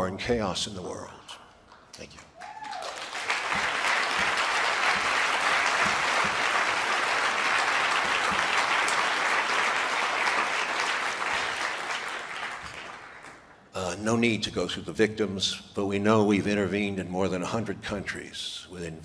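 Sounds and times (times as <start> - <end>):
audience applauding: 2.4 - 13.6.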